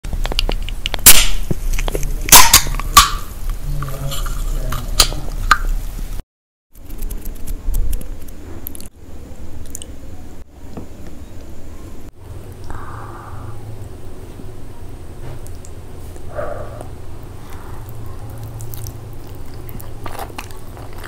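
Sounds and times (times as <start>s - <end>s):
sharp cracks or pops: 0.1s - 3.3s.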